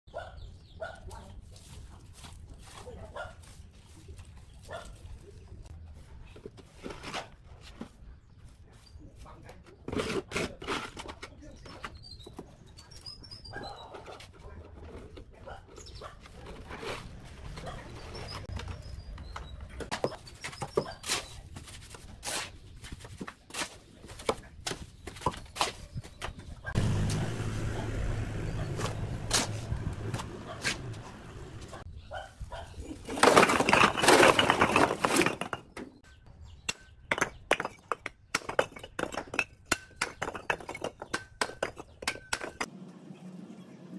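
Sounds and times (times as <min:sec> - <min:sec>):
shovel scraping wet mortar: 0:09.8 - 0:11.6.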